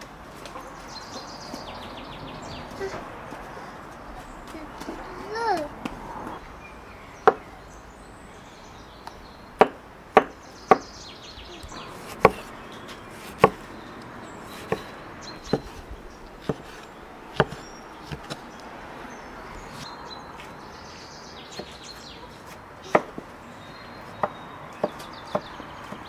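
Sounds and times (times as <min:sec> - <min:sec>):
cleaver chopping on wooden board: 0:07.2 - 0:07.4, 0:09.6 - 0:10.9, 0:12.0 - 0:12.5, 0:13.2 - 0:13.7, 0:14.5 - 0:18.5, 0:22.9 - 0:23.3, 0:24.2 - 0:26.0.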